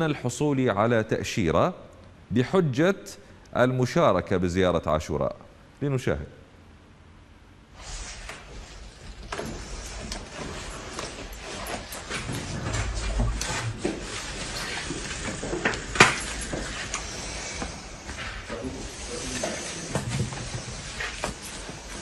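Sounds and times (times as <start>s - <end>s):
clothing rustling: 7.8s - 22.0s.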